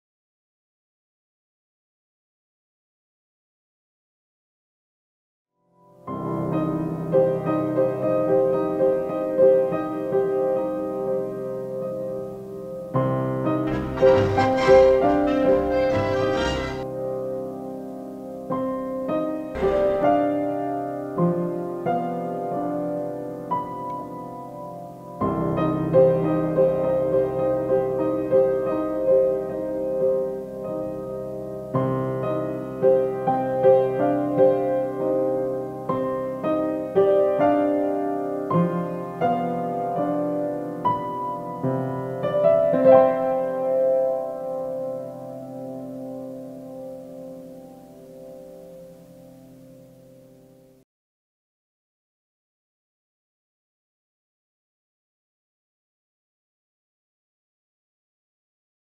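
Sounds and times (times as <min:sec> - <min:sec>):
slow piano chords: 0:05.8 - 0:50.8.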